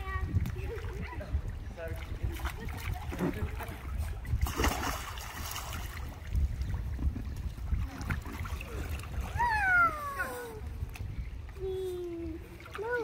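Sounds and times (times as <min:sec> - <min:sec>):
children splashing in pool: 0:02.3 - 0:06.1, 0:07.7 - 0:10.6
child calling out: 0:09.3 - 0:10.7.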